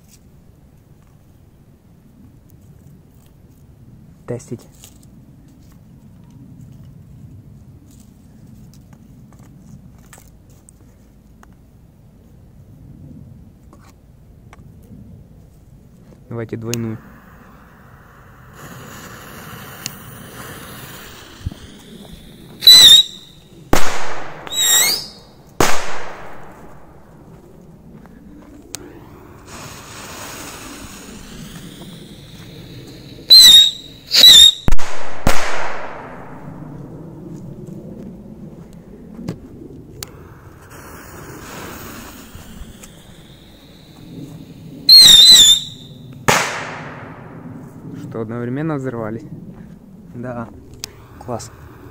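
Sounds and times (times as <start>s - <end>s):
faint hiss: 16.2s - 34.8s, 40.0s - 46.2s, 50.8s - 51.9s
rocket firecracker whistling: 17.0s - 27.1s, 28.7s - 36.7s, 40.1s - 47.7s
rocket whistle: 21.3s - 23.6s, 24.4s - 25.3s, 30.9s - 34.9s, 42.6s - 46.1s
firecracker bang: 22.5s - 27.1s, 33.3s - 36.7s, 44.9s - 47.5s.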